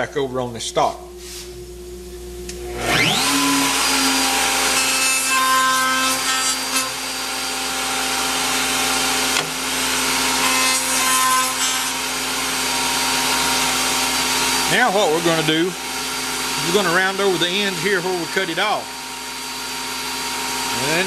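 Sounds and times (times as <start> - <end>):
router high whine: 2.5 - 4.8, 11.9 - 21.0
router cutting wood: 2.7 - 21.0.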